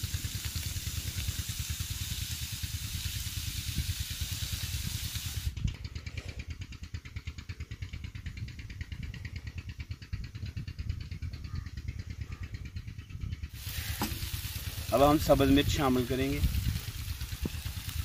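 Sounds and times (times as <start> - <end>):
meat sizzling on a griddle: 0.0 - 5.4, 13.6 - 18.0
engine thumping: 5.6 - 18.0.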